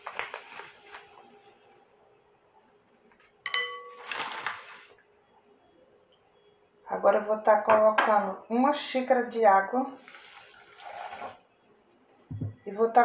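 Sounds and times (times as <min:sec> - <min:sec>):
cup clinking against bowl: 0:03.5 - 0:04.0.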